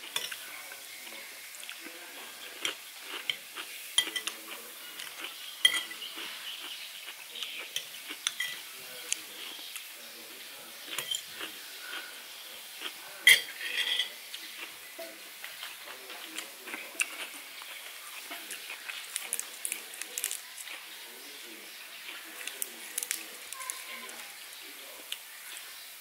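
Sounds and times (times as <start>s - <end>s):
cutlery and dishes clinking: 0.0s - 0.6s, 2.6s - 6.4s, 7.4s - 9.6s, 10.9s - 12.0s, 13.2s - 19.4s
dishes clattering: 4.0s - 4.4s, 5.6s - 6.1s, 7.8s - 8.7s, 11.0s - 11.3s, 13.2s - 14.2s.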